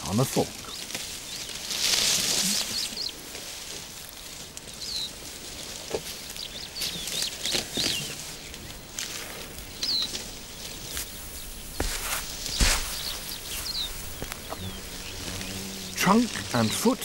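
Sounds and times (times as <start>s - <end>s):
grass rustling and crackling: 0.0s - 17.0s
high bird chirps: 9.4s - 16.9s.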